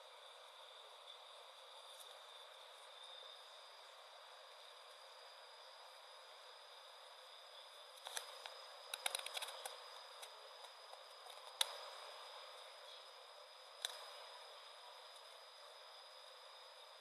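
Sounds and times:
thin high whine: 0:00.0 - 0:17.0
small sharp clicks and taps: 0:08.0 - 0:11.8.

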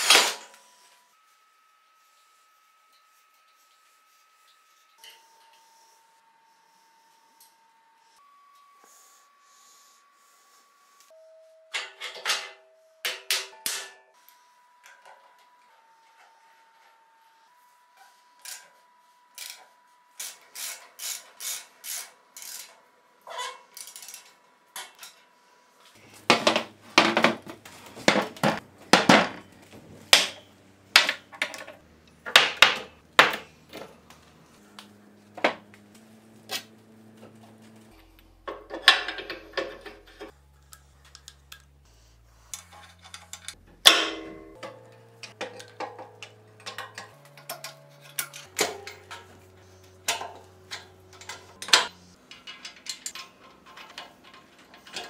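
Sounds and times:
ratchet wrench clicking: 0:20.2 - 0:22.8
steel parts clinking and knocking: 0:23.7 - 0:25.2, 0:38.4 - 0:41.8, 0:42.5 - 0:55.0.

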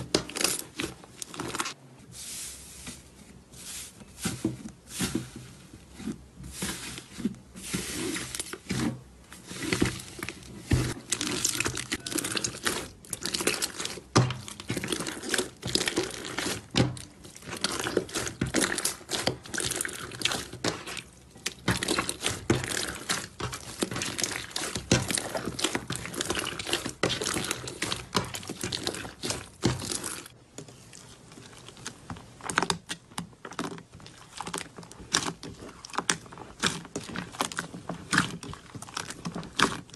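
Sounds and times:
slime squeezed wet crackles: 0:10.9 - 0:39.9.

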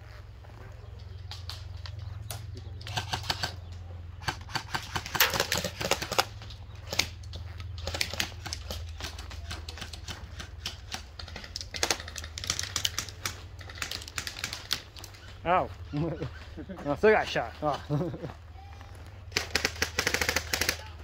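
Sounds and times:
airsoft guns firing: 0:02.3 - 0:03.6, 0:04.2 - 0:07.2, 0:07.8 - 0:15.1, 0:19.3 - 0:21.0.

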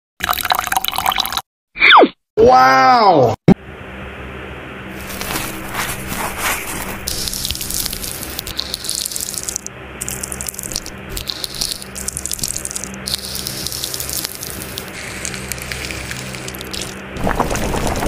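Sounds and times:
wet crackling of peeled fruit: 0:05.0 - 0:17.6.

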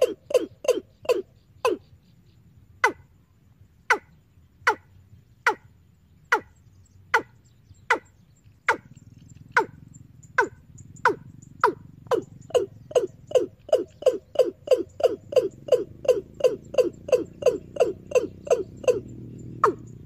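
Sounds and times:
recorded bird call through loudspeaker: 0:06.3 - 0:20.0.

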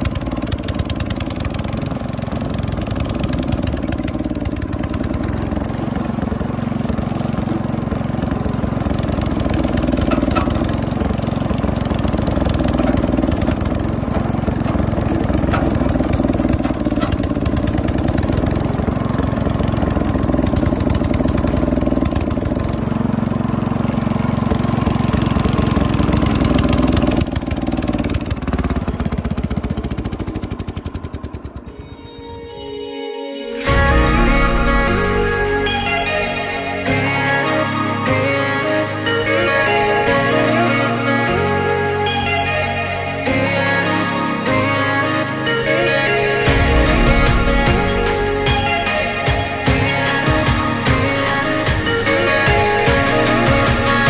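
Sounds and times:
lawn tractor engine running: 0:00.0 - 0:32.8, 0:33.6 - 0:54.0.

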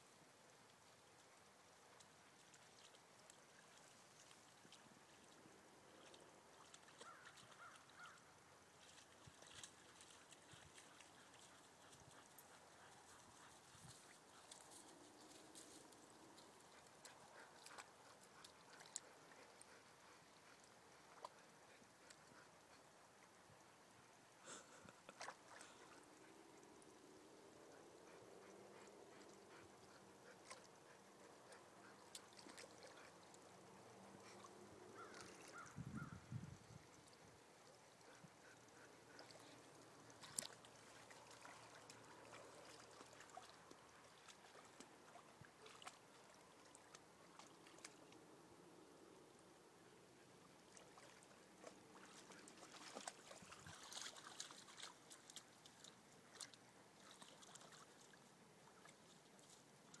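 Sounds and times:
water sloshing and splashing: 0:29.2 - 0:35.8, 0:39.0 - 0:48.2, 0:50.6 - 0:58.2.

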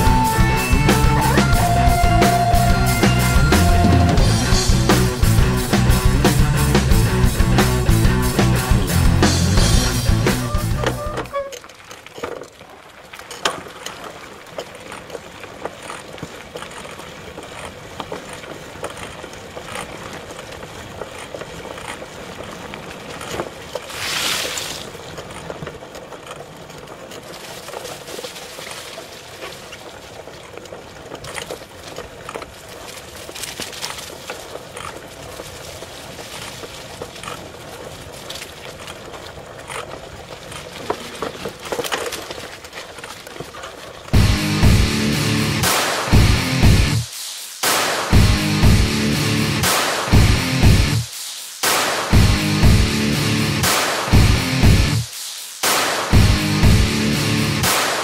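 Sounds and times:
crackles and clicks: 0:00.0 - 0:58.0
steady rushing hiss: 0:44.0 - 0:58.0.

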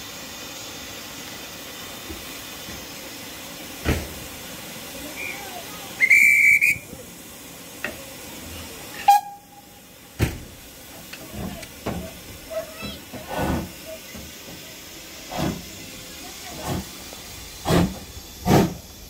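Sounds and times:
steam hissing from locomotive: 0:00.0 - 0:19.0
high train whistle blast: 0:05.2 - 0:06.9, 0:09.0 - 0:09.7.

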